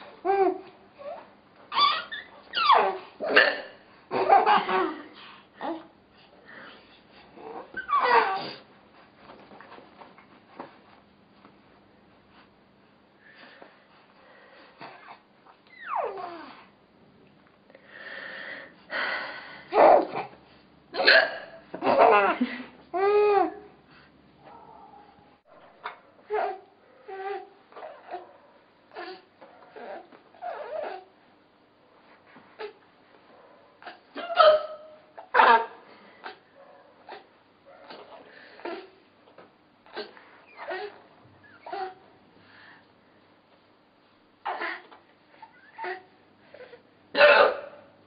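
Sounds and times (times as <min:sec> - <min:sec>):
baby laughing: 0:01.7 - 0:03.0, 0:04.1 - 0:05.8, 0:21.8 - 0:23.5
woman hiccuping: 0:02.6 - 0:05.1, 0:21.0 - 0:22.4, 0:47.2 - 0:47.8.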